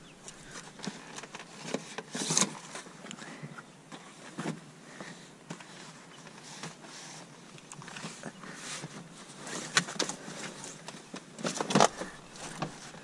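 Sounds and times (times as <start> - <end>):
plastic panel and jacket rustling: 0.0 - 13.0.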